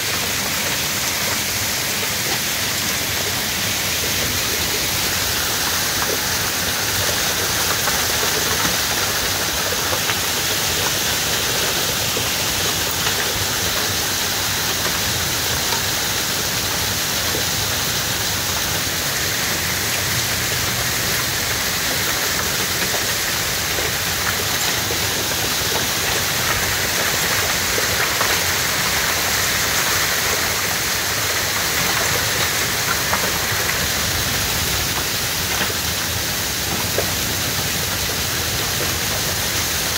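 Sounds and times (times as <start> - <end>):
heavy rain on roof: 0.0 - 39.9.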